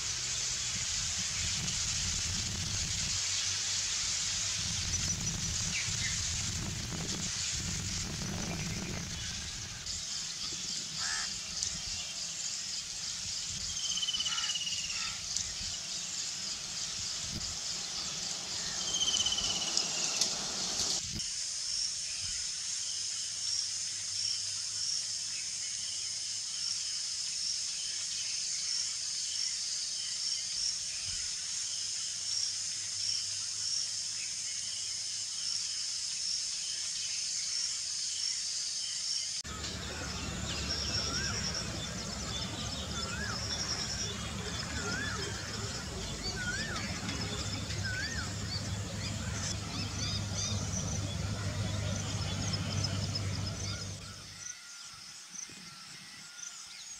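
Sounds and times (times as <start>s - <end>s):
high insect chorus: 0.0s - 56.9s
high insect hiss: 0.0s - 56.9s
falling bird calls: 8.1s - 12.4s, 13.7s - 21.0s, 39.4s - 54.3s.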